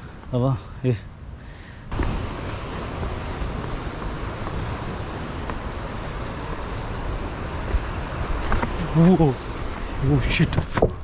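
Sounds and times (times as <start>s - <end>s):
wind buffeting microphone: 1.2s - 11.0s.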